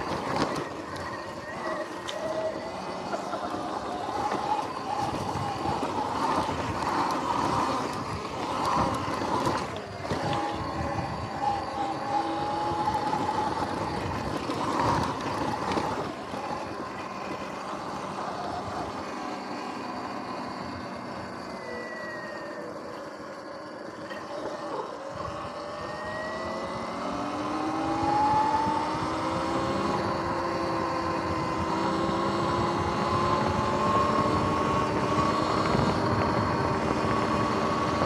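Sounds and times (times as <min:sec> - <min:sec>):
electric motor whine: 0:00.0 - 0:38.0
tyre noise: 0:00.0 - 0:38.0
wind rush: 0:27.7 - 0:38.0.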